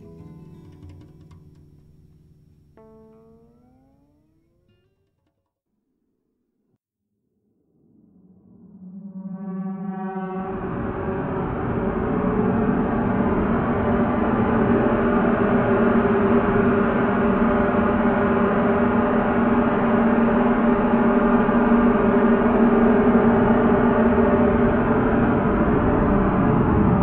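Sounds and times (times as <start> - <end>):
metallic drone: 7.6 - 27.0
low sustained tones: 7.7 - 27.0.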